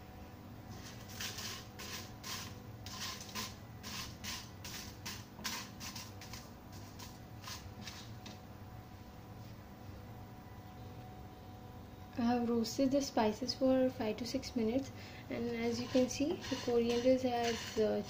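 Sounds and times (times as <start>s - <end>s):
faint hum: 0.0s - 18.0s
spatula scraping spices in pan: 0.8s - 8.2s, 15.6s - 18.0s.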